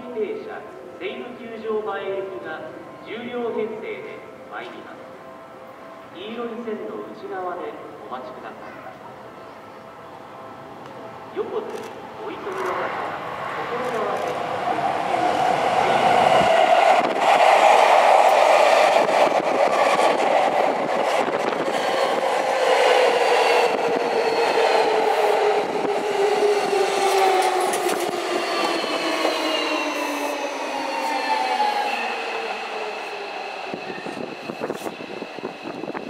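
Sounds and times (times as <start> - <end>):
train wheels on rails: 13.8 - 36.0.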